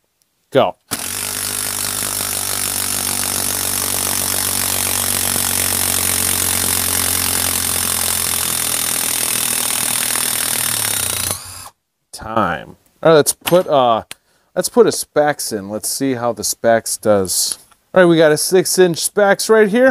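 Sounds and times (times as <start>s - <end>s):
impact driver rattling: 0.9s - 11.7s
motor whine: 0.9s - 11.7s.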